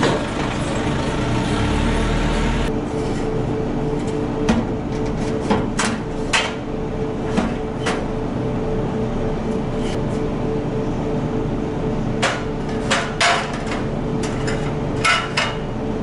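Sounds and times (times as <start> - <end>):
engine idling: 0.0 - 2.7.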